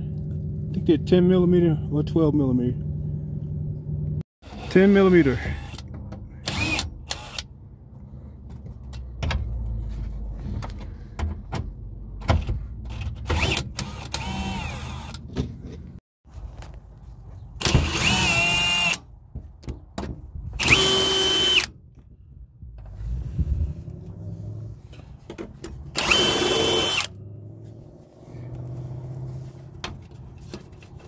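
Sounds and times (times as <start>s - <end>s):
power drill whining: 6.4s - 7.5s, 13.4s - 15.2s, 17.8s - 19.0s, 20.6s - 21.7s, 26.0s - 27.1s.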